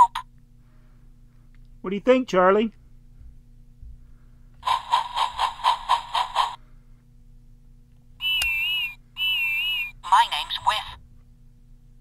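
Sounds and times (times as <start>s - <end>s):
electronic steam engine chuffing: 4.6s - 6.6s.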